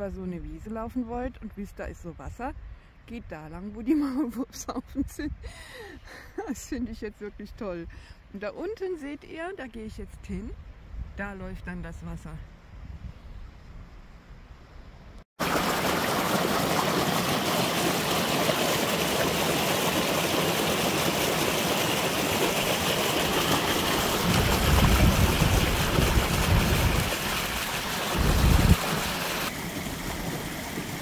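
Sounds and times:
brook rushing over stones: 0:15.4 - 0:31.0.

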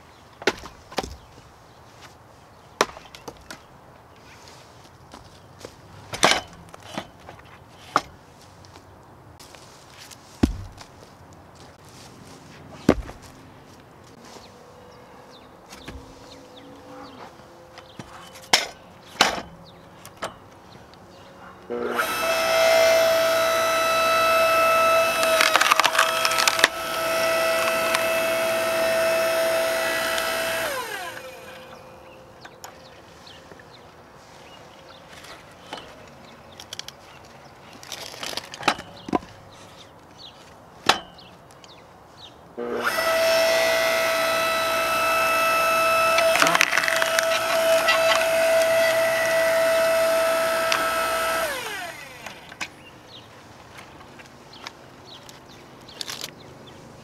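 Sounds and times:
log cracking and splintering: 0:10.2 - 0:11.4, 0:25.0 - 0:28.4, 0:45.9 - 0:49.4
wood knocking: 0:10.4 - 0:11.1, 0:12.9 - 0:13.3
log splitter motor whining: 0:21.7 - 0:32.5, 0:42.6 - 0:52.7.

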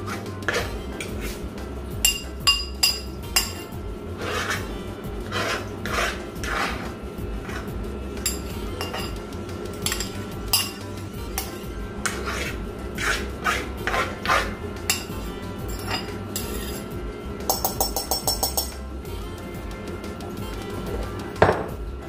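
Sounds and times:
utensil scraping a dish: 0:00.0 - 0:01.4, 0:02.8 - 0:09.2, 0:09.8 - 0:17.0
metal utensil clinking on a dish: 0:02.1 - 0:03.8, 0:08.3 - 0:09.2, 0:09.8 - 0:11.7, 0:14.9 - 0:16.8, 0:17.5 - 0:18.8.

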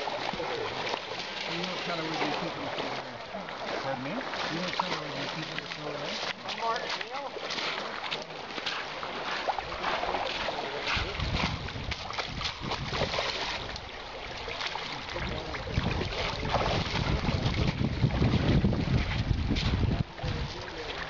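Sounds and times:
rushing creek water: 0:00.0 - 0:21.0
wind buffeting microphone: 0:10.8 - 0:13.9, 0:15.0 - 0:21.0.

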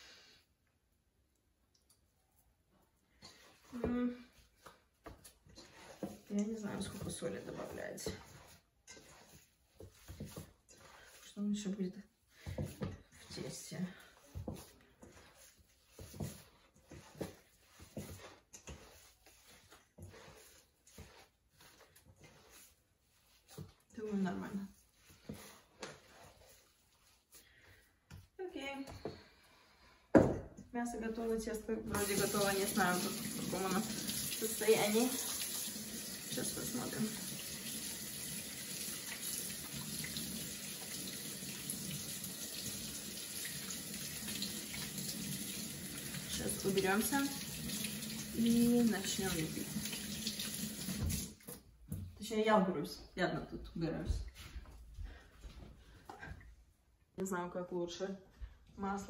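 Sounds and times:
hands squishing meat filling: 0:14.2 - 0:23.9
faucet running into sink: 0:31.9 - 0:51.6.

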